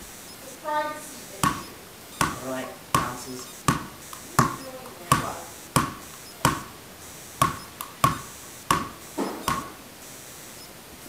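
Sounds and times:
rubber ball bouncing on tile floor: 1.4s - 6.8s, 7.4s - 9.8s.

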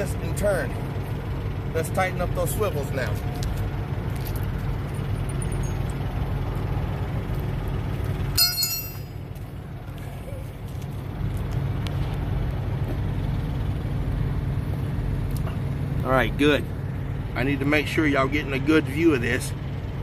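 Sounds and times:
diesel truck engine idling: 0.0s - 20.0s
tire chain clinking: 1.7s - 9.6s.

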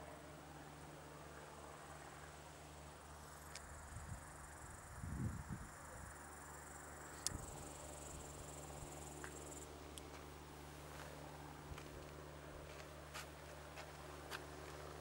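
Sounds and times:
insects chirring: 3.1s - 9.8s.

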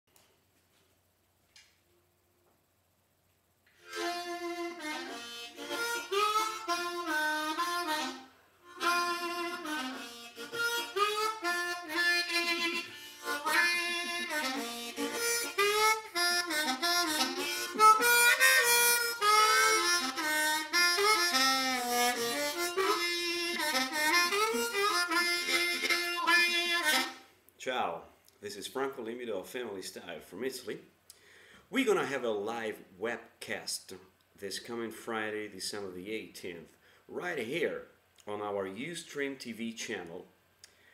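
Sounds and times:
harmonica melody: 3.8s - 27.3s.

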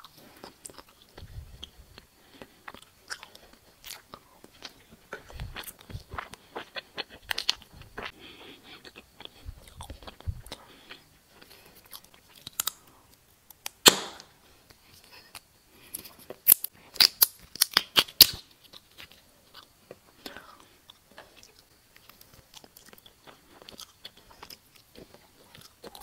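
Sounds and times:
chewing gummy candy: 0.0s - 13.8s, 14.7s - 26.0s.

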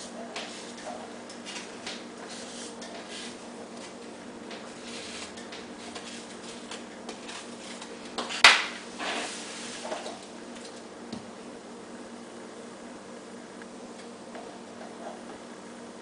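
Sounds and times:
brief scraping: 9.0s - 10.1s.

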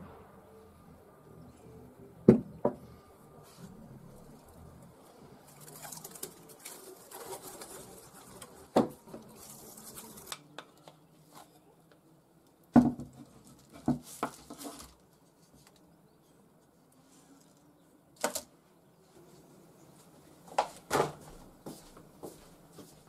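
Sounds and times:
paper crinkling: 5.4s - 10.5s.

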